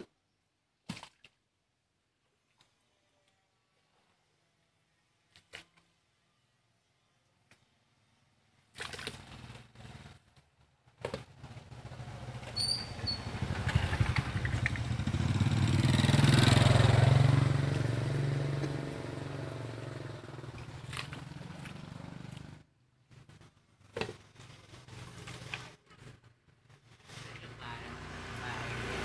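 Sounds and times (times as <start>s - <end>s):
small motorbike engine passing: 11.4s - 22.7s, 27.5s - 29.0s.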